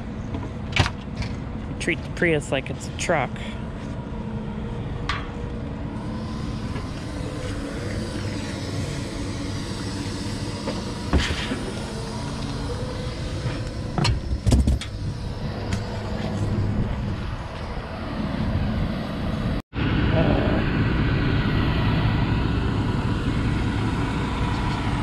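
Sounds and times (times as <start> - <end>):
truck engine idling: 3.3 - 17.4.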